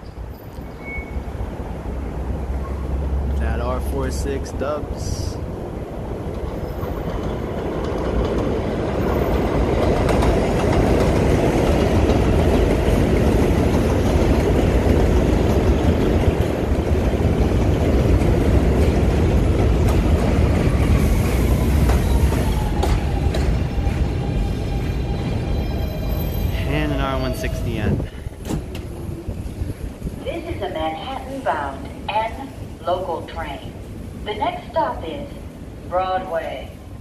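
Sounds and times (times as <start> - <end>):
train wheels rumbling on rails: 1.6 - 32.7
train falling whine: 15.3 - 26.6.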